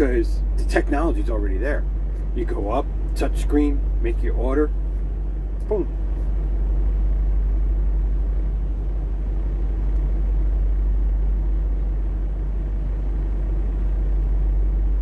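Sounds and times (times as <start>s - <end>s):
diesel truck engine idling: 0.0s - 15.0s.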